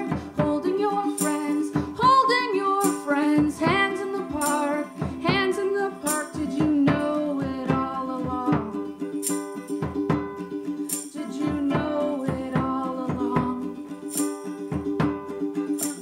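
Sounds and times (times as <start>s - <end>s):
woman singing: 0.0s - 9.0s, 10.9s - 14.2s, 15.7s - 16.0s
plucked string instrument: 0.0s - 16.0s.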